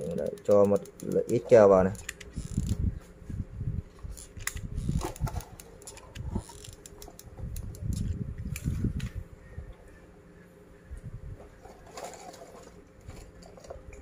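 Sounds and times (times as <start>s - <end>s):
plastic straws clicking and tapping: 0.0s - 1.5s.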